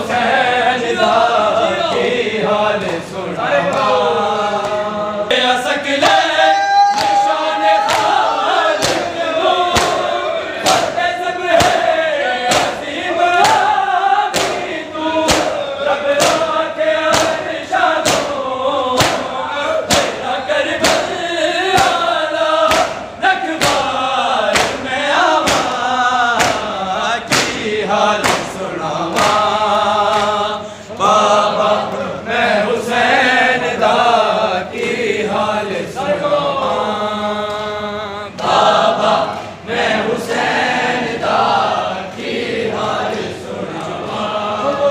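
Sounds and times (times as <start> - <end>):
men chanting: 0.0 - 44.9
hands slapping chests: 8.8 - 9.1, 9.7 - 10.9, 12.5 - 12.8, 14.3 - 15.6, 16.2 - 16.5, 17.1 - 17.4, 18.0 - 18.4, 19.0 - 19.3, 19.9 - 20.2, 22.7 - 23.9, 24.5 - 24.8, 25.4 - 25.8, 26.4 - 26.7, 27.3 - 27.6, 28.2 - 29.5.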